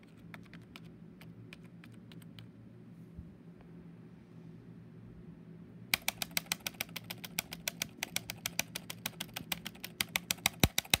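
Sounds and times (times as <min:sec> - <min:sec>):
keyboard key clacking: 0:06.0 - 0:11.0.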